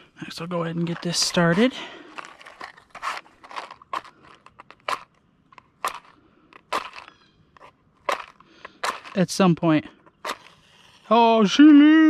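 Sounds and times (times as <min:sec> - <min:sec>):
cooking gear clicking and knocking: 0:08.1 - 0:09.3.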